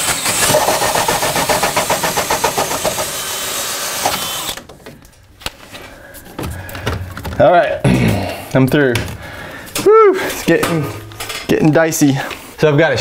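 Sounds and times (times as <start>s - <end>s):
power drill cutting wood: 0.0s - 4.7s.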